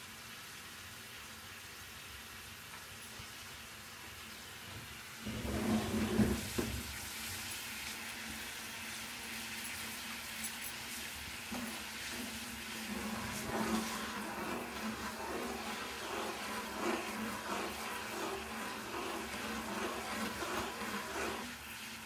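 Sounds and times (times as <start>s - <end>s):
water boiling in a pan: 0.0s - 22.0s
spoon stirring in a pan: 10.4s - 21.6s.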